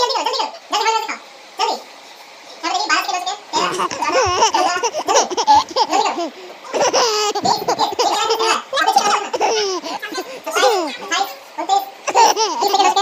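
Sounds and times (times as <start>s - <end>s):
children laughing: 3.5s - 11.4s, 12.0s - 13.0s.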